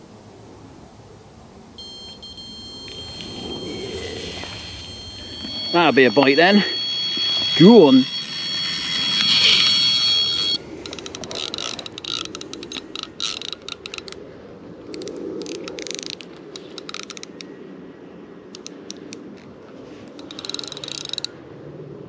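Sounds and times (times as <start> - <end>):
bite alarm high tone: 1.8 - 10.6
fishing reel clicking: 2.9 - 14.2, 14.9 - 17.5, 18.5 - 19.2, 20.2 - 21.3.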